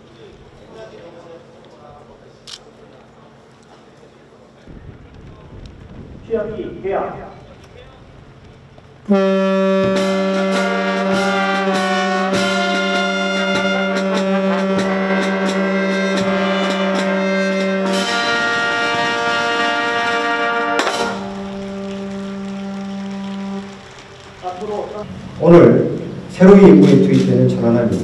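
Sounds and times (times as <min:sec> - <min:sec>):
drum strokes: 0:04.7 - 0:27.0
brass band playing slow piece: 0:09.1 - 0:26.3.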